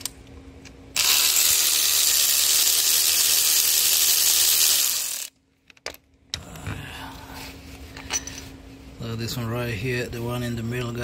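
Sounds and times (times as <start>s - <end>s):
power tool whirring: 1.0s - 5.3s.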